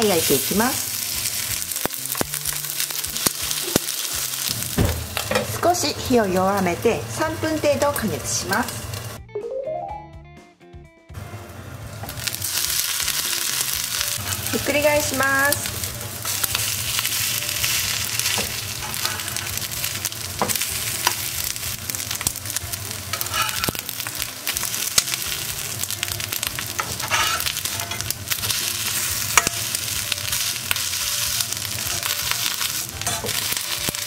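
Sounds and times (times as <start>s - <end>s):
patties sizzling in frying pan: 0.0s - 9.2s, 11.4s - 34.0s
metal spatula scraping pan: 16.2s - 19.6s, 23.1s - 23.9s, 26.7s - 34.0s.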